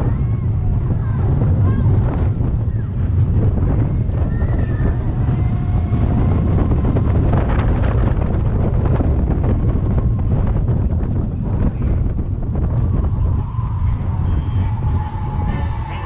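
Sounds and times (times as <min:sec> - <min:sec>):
roller coaster rumbling on track: 0:00.0 - 0:16.0
wind buffeting microphone: 0:00.0 - 0:16.0
faint high squealing: 0:13.4 - 0:16.0.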